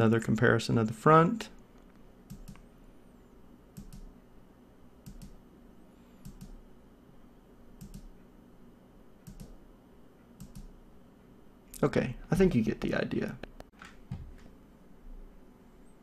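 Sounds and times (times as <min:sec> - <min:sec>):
computer keyboard clicks: 0:02.3 - 0:02.6, 0:03.8 - 0:04.1, 0:05.1 - 0:05.4, 0:06.2 - 0:06.6, 0:07.8 - 0:08.1, 0:09.3 - 0:09.6, 0:10.4 - 0:10.7.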